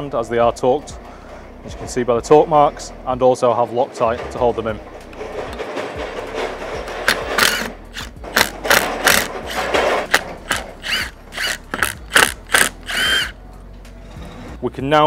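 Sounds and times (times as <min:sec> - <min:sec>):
impact driver hammering: 0:07.0 - 0:13.4.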